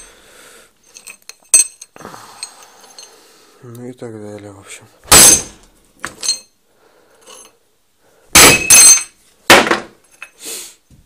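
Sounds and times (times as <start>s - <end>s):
hammer clanking on steel plate: 8.4s - 9.9s.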